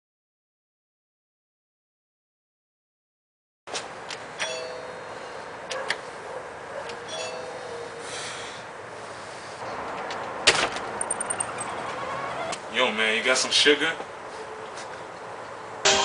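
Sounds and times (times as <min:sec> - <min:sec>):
doorbell chime: 0:04.4 - 0:05.1, 0:07.1 - 0:07.6.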